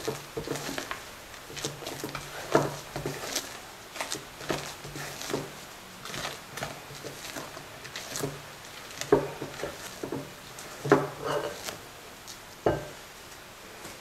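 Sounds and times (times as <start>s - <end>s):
spatula scraping glass bowl: 9.1s - 11.8s.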